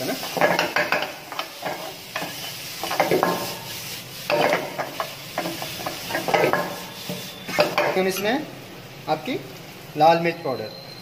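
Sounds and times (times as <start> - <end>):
metal ladle scraping a wok: 0.0 - 8.4
light sizzle of frying: 0.0 - 11.0.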